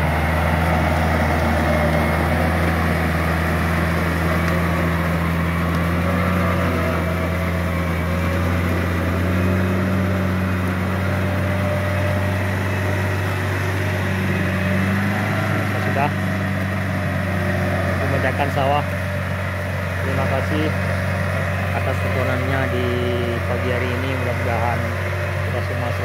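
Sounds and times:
tractor diesel engine under load: 0.0s - 26.0s.

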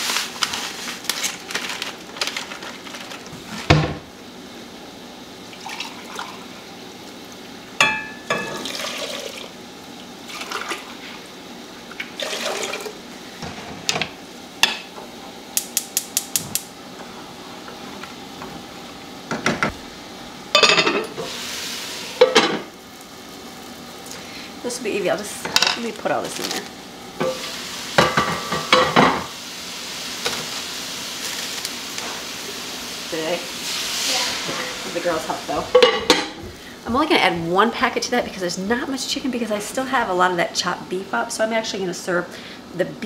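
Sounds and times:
water pouring into a pot: 5.5s - 6.7s, 8.4s - 9.6s, 10.3s - 11.0s, 11.9s - 13.0s
pots and utensils clinking: 7.8s - 9.3s, 20.5s - 21.4s, 22.1s - 22.7s, 25.4s - 29.3s, 35.6s - 36.4s.

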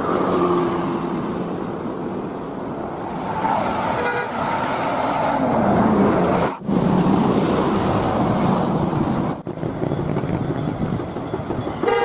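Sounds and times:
road noise: 0.0s - 12.0s
bus horn toot: 4.0s - 4.4s.

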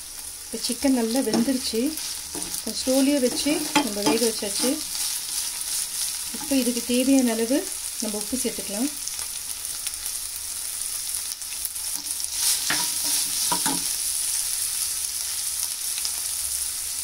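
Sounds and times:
food sizzling in oil: 0.0s - 17.0s
metal spoon scraping a pan: 1.2s - 6.8s, 12.0s - 14.0s.

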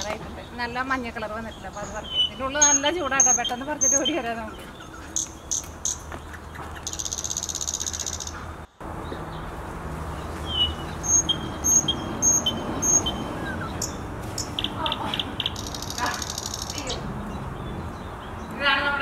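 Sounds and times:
small birds chirping: 0.0s - 19.0s
fast buzzing bird trill: 1.5s - 8.5s, 10.5s - 17.4s.

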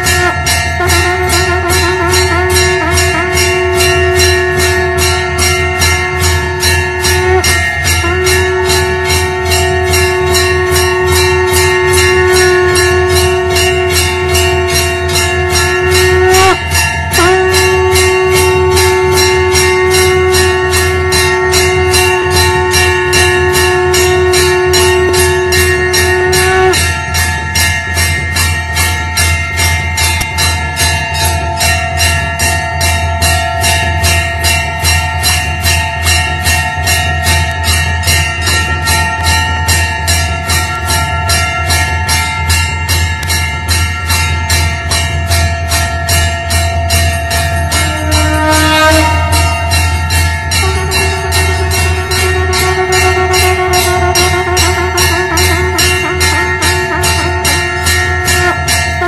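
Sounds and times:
conch shell blown: 0.0s - 31.0s, 44.1s - 59.0s
temple bells ringing: 0.0s - 59.0s.

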